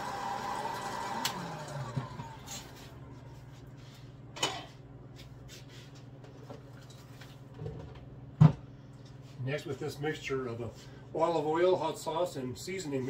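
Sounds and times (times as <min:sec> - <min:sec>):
popcorn popper fan whirring: 0:00.0 - 0:03.0.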